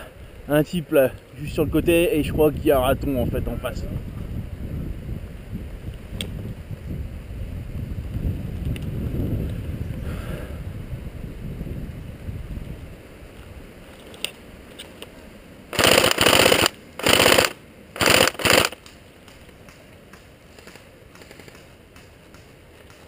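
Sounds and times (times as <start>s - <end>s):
airsoft gun automatic bursts: 15.7s - 18.8s.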